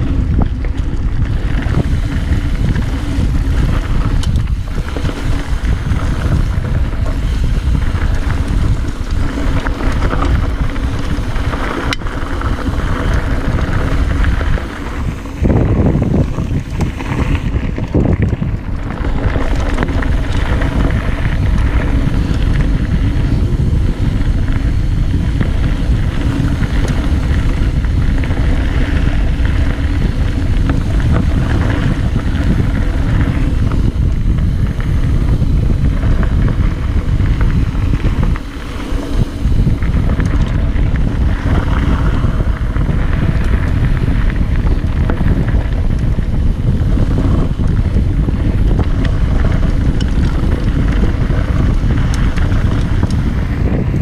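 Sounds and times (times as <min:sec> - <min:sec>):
bike tyres rattling on dirt trail: 0:00.0 - 0:54.0
wind buffeting microphone: 0:00.0 - 0:54.0.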